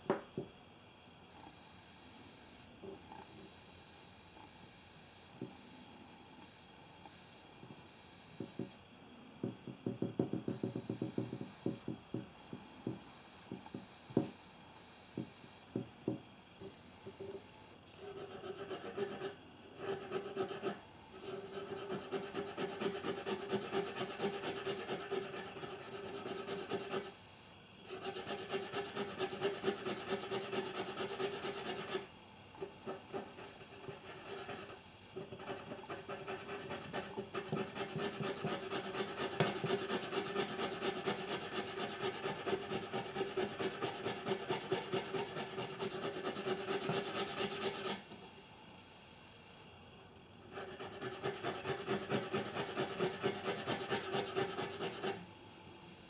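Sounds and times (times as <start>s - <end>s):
steady hum: 0.0s - 56.0s
rhythmic rasping scrubbing on metal: 18.0s - 27.2s, 27.9s - 48.2s, 50.5s - 55.2s.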